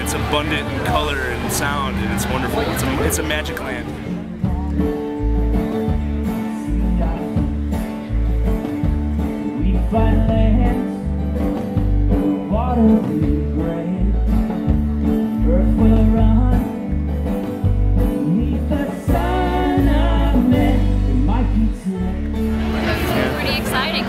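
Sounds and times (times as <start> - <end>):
country band music: 0.0 - 24.0
person singing: 4.0 - 16.9, 18.0 - 23.4.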